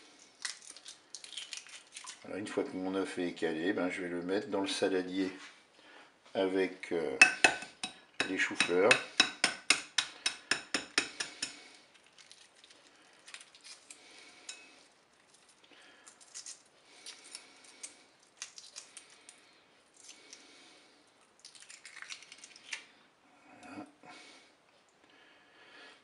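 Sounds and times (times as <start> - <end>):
egg shell crackling while peeled: 0.0 - 2.3, 9.2 - 23.0
egg shell tapping: 7.2 - 12.5.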